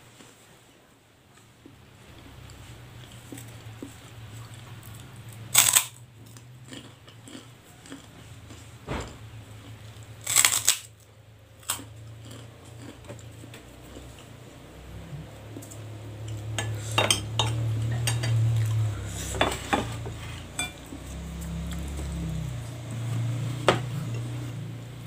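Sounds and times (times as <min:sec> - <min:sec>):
low drone: 0:14.2 - 0:25.0
tableware clattering: 0:16.6 - 0:18.5, 0:19.3 - 0:21.0
tableware clinking: 0:16.6 - 0:18.5, 0:19.3 - 0:21.0.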